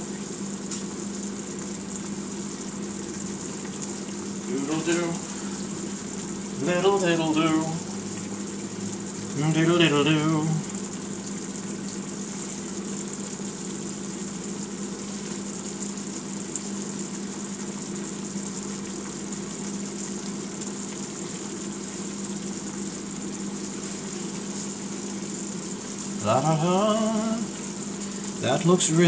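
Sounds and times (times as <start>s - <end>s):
food sizzling in skillet: 2.1s - 14.1s, 14.8s - 15.9s, 21.0s - 26.2s.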